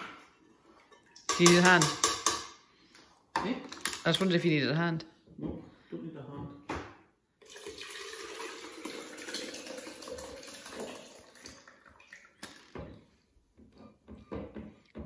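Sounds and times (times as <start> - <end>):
soup pouring and splashing: 7.4 - 12.9.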